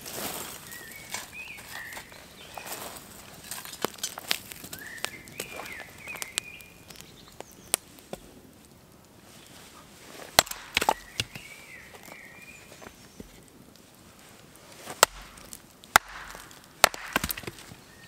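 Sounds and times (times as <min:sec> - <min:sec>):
bird chirping: 0:00.6 - 0:03.0, 0:04.7 - 0:07.8, 0:10.5 - 0:13.4, 0:17.6 - 0:18.0.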